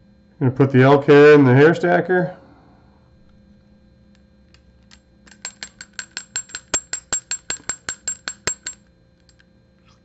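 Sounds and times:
hair stacker tapping on bench: 4.8 - 8.9.

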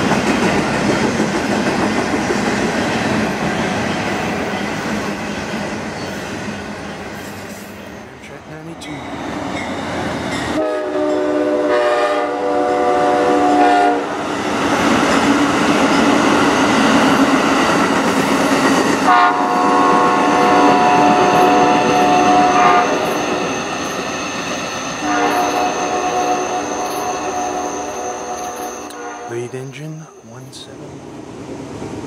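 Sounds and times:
train wheels on rails: 0.0 - 8.0, 14.2 - 29.0
train horn blasts: 10.5 - 14.2, 19.0 - 23.0, 25.0 - 29.5.

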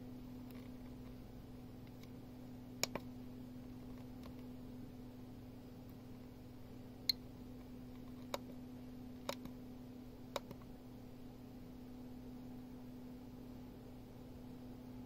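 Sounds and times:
steady low hum: 0.0 - 15.0
geiger counter clicks: 10.3 - 10.7.

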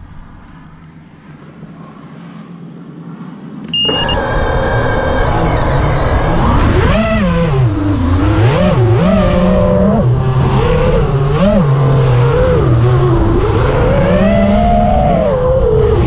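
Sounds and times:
drone motors whining: 3.6 - 16.0.

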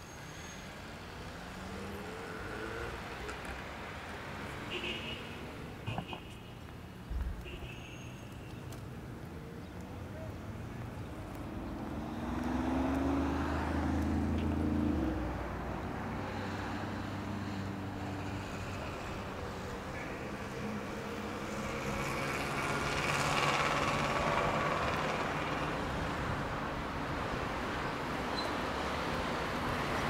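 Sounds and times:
steady traffic noise: 0.0 - 30.0
vehicle passing: 10.8 - 26.8
vehicle engine running: 21.6 - 26.0.

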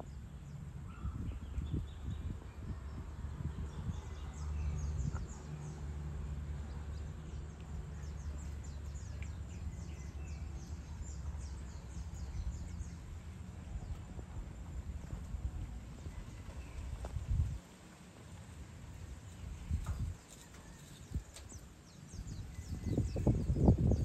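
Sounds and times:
birds twittering: 0.0 - 6.0, 6.6 - 14.1, 19.2 - 24.0
low steady rumble: 0.0 - 20.2.

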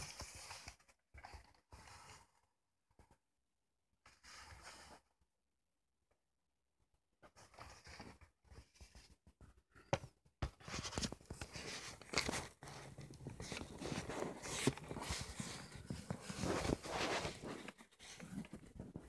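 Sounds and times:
cardboard box rustling: 10.8 - 19.0.

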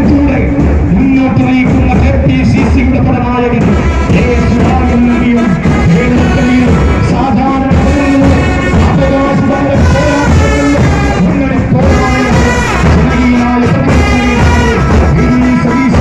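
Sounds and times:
marching brass band playing: 0.0 - 16.0.

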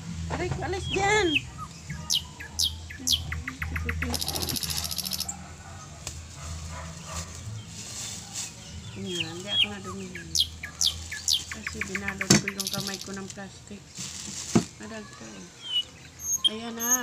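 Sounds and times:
bird buzzy trill: 0.0 - 5.6, 9.1 - 13.3
birds chirping: 0.0 - 17.0.

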